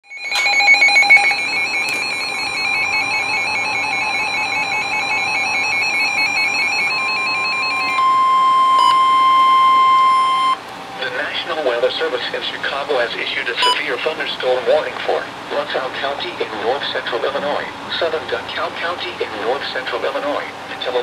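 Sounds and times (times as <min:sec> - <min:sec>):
two-tone warbling alarm: 0:00.0 - 0:10.6.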